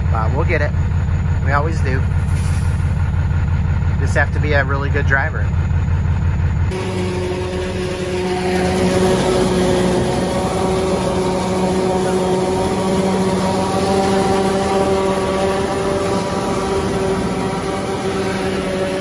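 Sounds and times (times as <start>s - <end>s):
tractor engine running: 0.0s - 19.0s.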